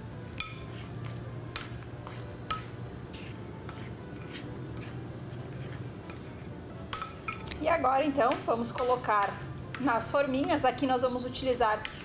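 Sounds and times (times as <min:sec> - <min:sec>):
spoon clinking against glass bowl: 0:06.9 - 0:07.6.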